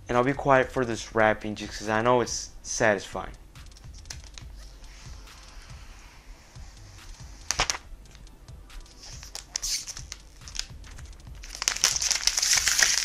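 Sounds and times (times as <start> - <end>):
plastic wrap crinkling: 7.5 - 7.8, 8.9 - 13.0.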